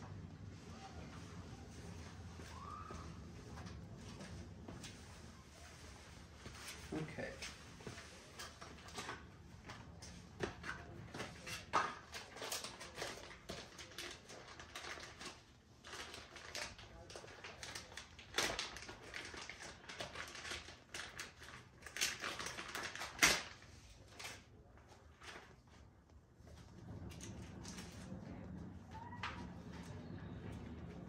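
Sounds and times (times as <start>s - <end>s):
rustling of packaging and papers: 0.1s - 31.0s.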